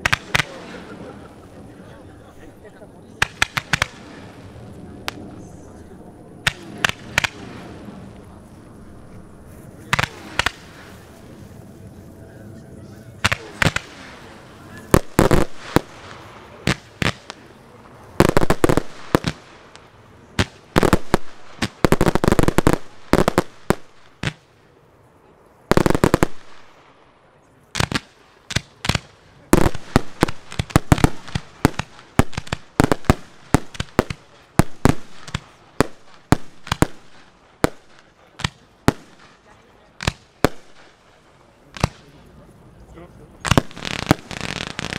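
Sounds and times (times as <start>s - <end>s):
fireworks bangs: 0.0s - 2.4s, 3.0s - 12.0s, 13.1s - 24.8s, 25.6s - 42.4s, 43.3s - 44.9s.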